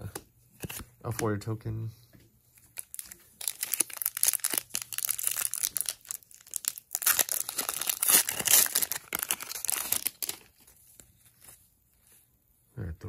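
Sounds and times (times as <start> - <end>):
foil wrapper crinkling: 2.7 - 11.0
foil wrapper tearing: 2.8 - 10.6.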